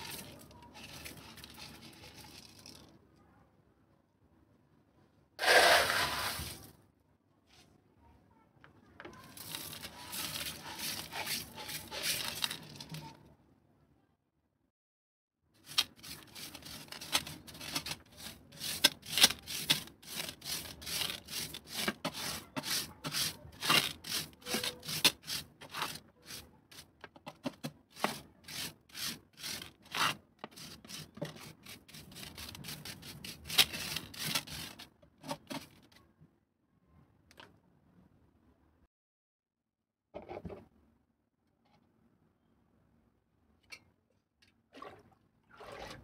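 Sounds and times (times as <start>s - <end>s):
gravel scraped with plastic scoop: 0.0s - 2.9s, 5.4s - 6.8s, 9.2s - 13.2s, 15.7s - 26.9s, 28.0s - 35.8s.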